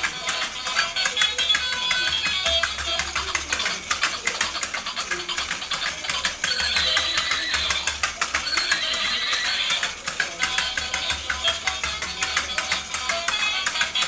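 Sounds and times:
toy gear mechanism clicking: 0.0 - 14.0.

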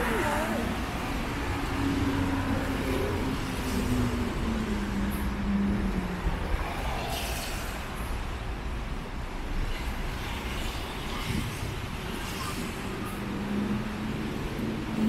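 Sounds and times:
city traffic on wet streets: 0.0 - 15.0.

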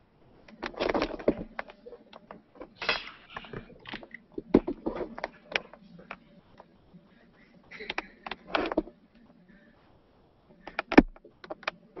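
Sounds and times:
small clicks and knocks: 0.4 - 6.8, 7.8 - 9.4, 10.5 - 12.0.

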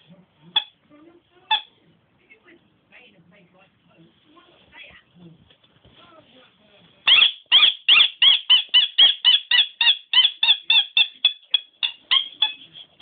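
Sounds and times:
squeaky toy squeaking: 0.0 - 0.8, 1.5 - 1.8, 7.0 - 13.0.

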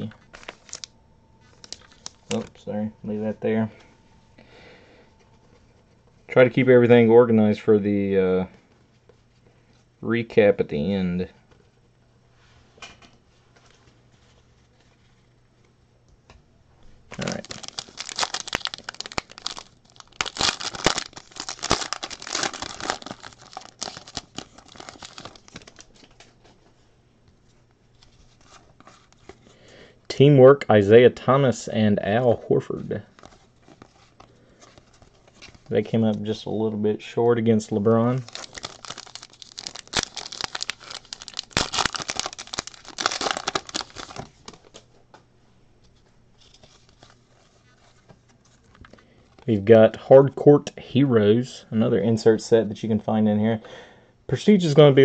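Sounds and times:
cards rustling: 0.0 - 2.6, 17.1 - 26.6, 38.1 - 44.9
foil pack tearing and crinkling: 17.2 - 26.0, 38.2 - 44.8.

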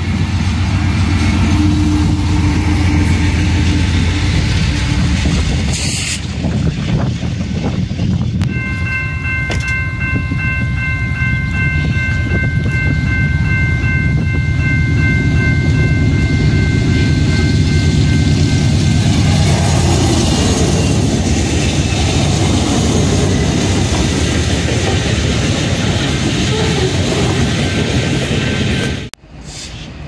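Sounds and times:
diesel locomotive rumble: 0.0 - 30.0
freight train rumbling past: 0.0 - 30.0
crossing warning bell ringing: 0.9 - 5.3, 8.4 - 27.5.

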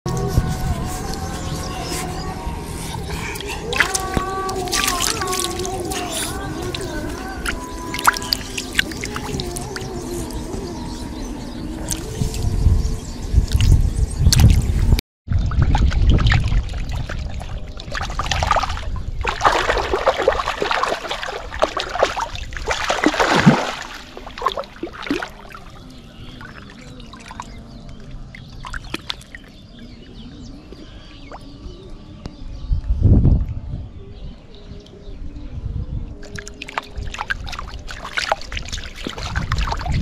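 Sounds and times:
water lapping: 0.1 - 12.5, 15.6 - 31.5, 36.2 - 40.0
fish thrashing and splashing water: 3.2 - 10.4, 15.3 - 29.6, 36.2 - 40.0.

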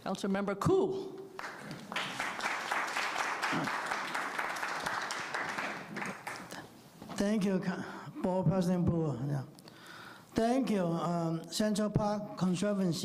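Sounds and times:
audience applauding: 1.4 - 6.6.

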